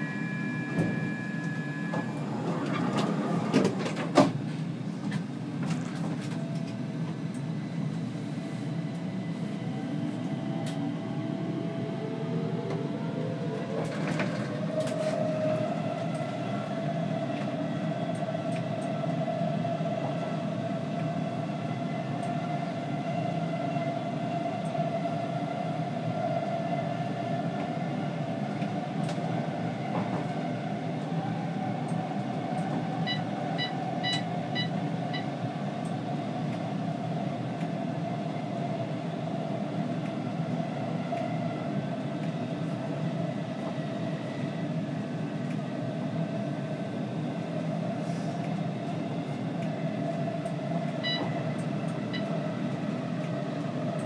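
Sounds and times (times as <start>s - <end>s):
traction motor whine: 0.0s - 3.8s.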